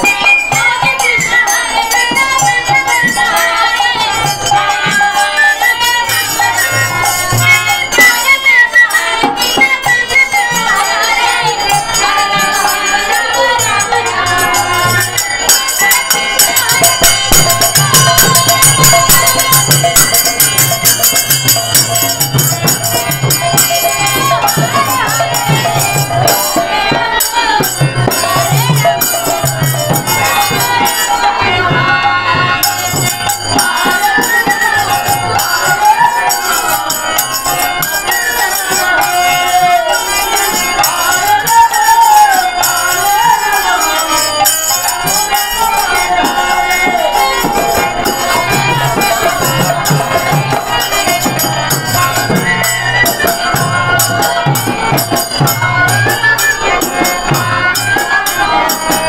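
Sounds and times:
jingling hand percussion: 0:00.0 - 0:59.0
barrel drum beating: 0:16.3 - 0:36.2.

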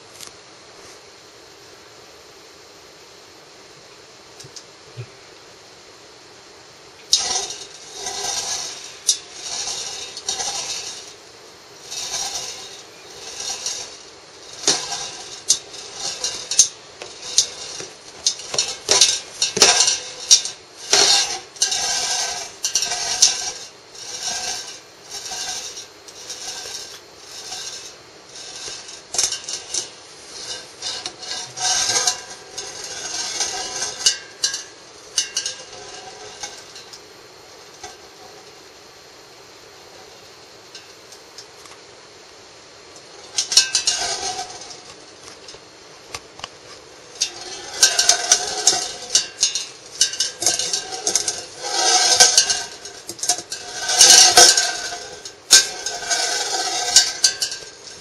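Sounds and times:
marbles rolling in a metal can: 0:07.0 - 0:38.6, 0:42.9 - 0:45.6, 0:46.8 - 0:58.0.

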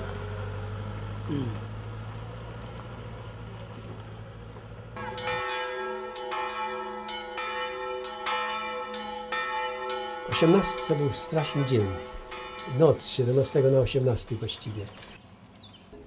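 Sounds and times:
church bells ringing: 0:03.3 - 0:15.0.

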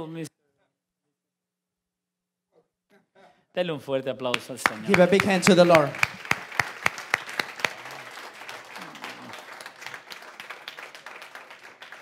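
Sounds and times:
congregation applauding: 0:04.3 - 0:12.0.

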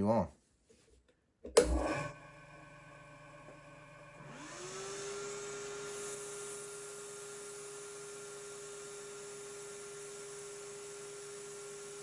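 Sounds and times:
lathe motor whining: 0:01.6 - 0:12.0.

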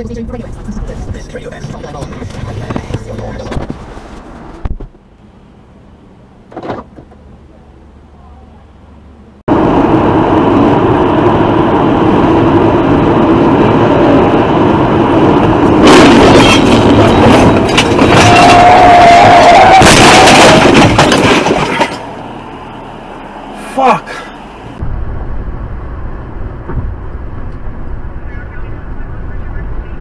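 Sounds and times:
road and wind noise in car: 0:00.0 - 0:30.0
car crash bangs and scraping: 0:15.8 - 0:22.2
tyre screech: 0:18.0 - 0:20.6.

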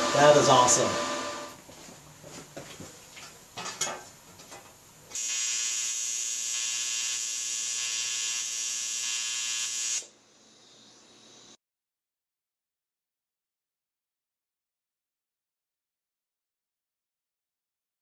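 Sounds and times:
welding arc buzzing: 0:00.0 - 0:01.6, 0:05.1 - 0:10.1.

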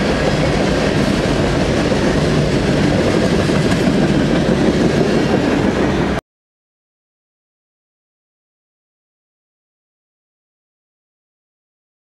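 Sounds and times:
freight train wheels rumbling: 0:00.0 - 0:06.2.

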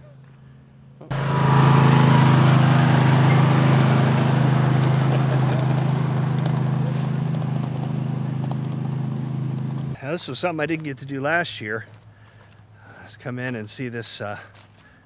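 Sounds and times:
small engine humming: 0:01.1 - 0:10.0.

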